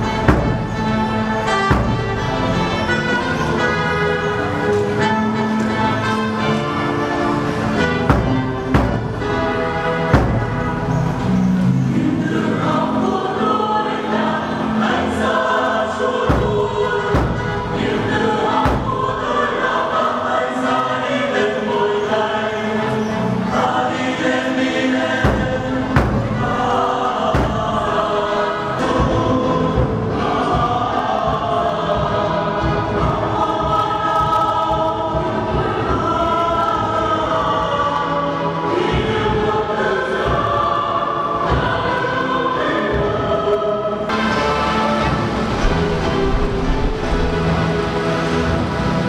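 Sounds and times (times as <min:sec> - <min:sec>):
low thuds: 0:00.0 - 0:02.7, 0:07.7 - 0:11.3, 0:16.2 - 0:19.4, 0:25.2 - 0:28.3
choir singing a hymn: 0:00.0 - 0:49.0.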